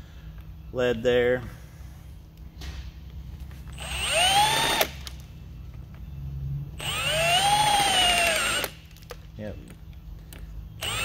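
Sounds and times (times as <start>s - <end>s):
electric drill whining: 3.7s - 5.1s, 6.8s - 8.8s, 10.8s - 11.0s.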